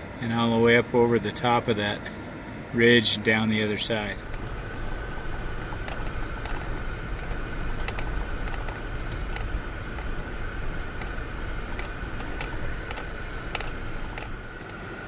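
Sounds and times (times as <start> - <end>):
engine and tyre rumble: 0.0 - 15.0
thin steady whine: 0.0 - 15.0
knocks and rattles from bumps: 4.2 - 14.8.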